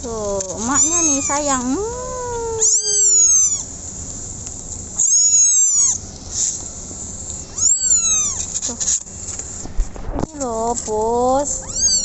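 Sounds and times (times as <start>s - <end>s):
kitten mewing: 0.4s - 3.7s, 5.0s - 6.0s, 7.5s - 9.0s, 11.5s - 12.0s.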